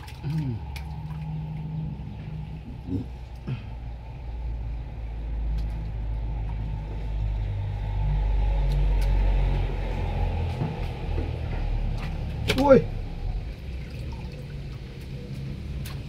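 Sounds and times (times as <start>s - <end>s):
water splashing off a net: 0.0s - 1.3s
low rumble: 0.0s - 15.8s.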